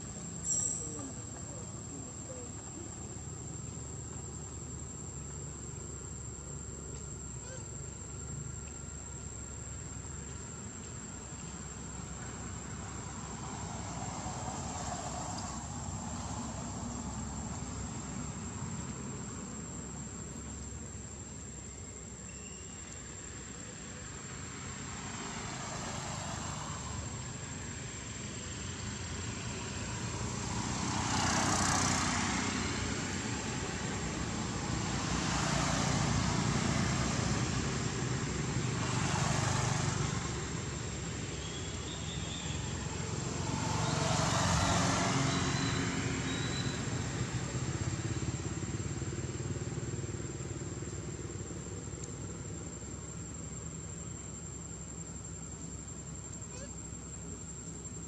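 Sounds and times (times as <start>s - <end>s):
vehicles passing on a road: 0.0s - 58.0s
low engine hum: 22.8s - 58.0s.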